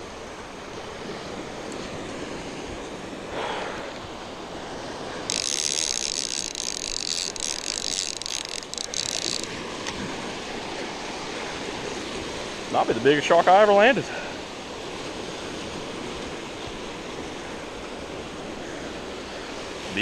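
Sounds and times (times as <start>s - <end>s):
surf washing on beach: 0.0s - 20.0s
fishing reel whirring: 4.8s - 10.3s.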